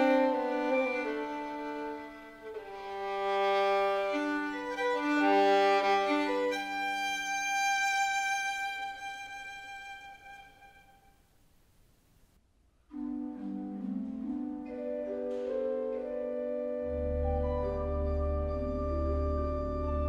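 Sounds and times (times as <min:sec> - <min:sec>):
solo violin melody: 0:00.0 - 0:11.2.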